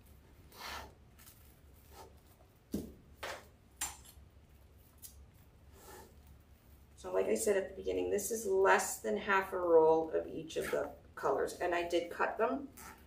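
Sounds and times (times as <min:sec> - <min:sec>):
brushing rustle: 0:00.0 - 0:02.7, 0:04.3 - 0:11.0.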